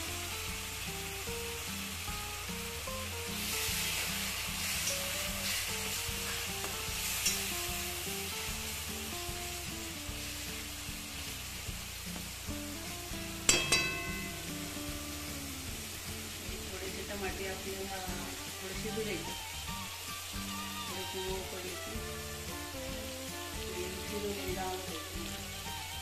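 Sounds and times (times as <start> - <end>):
food sizzling in oil: 0.0 - 26.0
sharp metal clanks: 13.5 - 14.6.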